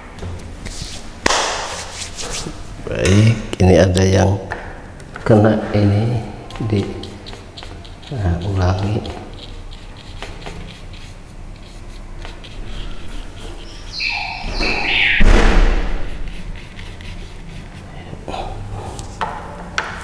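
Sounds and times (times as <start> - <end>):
high stepping tone: 13.6 - 16.5
loud thump: 14.4 - 16.0.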